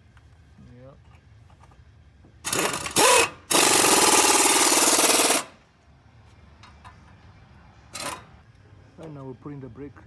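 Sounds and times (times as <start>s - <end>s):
pneumatic wrench hammering: 2.4s - 5.6s, 7.9s - 8.3s.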